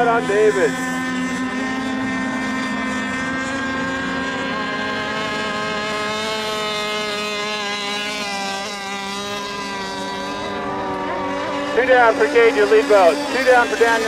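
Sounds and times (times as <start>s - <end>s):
racing boat motors whining: 0.0s - 14.0s.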